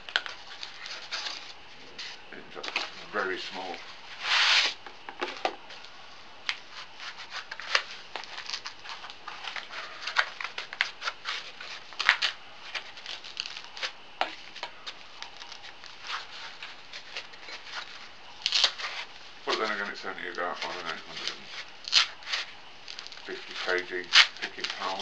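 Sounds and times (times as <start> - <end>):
packaging clicks and crinkles: 6.5 - 25.0.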